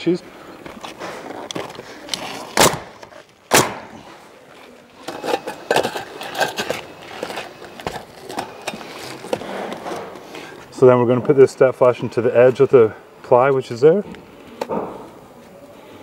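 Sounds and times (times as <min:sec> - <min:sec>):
pneumatic nailer firing: 0:02.5 - 0:04.1.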